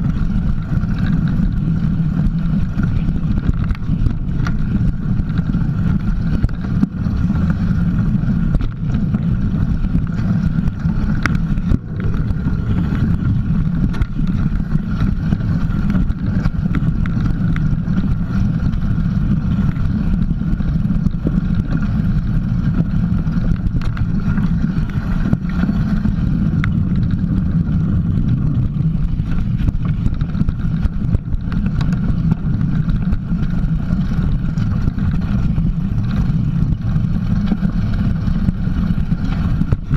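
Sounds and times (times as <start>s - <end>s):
bike rumbling over rough trail: 0.0s - 39.9s
wind buffeting microphone: 0.0s - 39.9s
faint clicks and knocks: 8.4s - 39.9s.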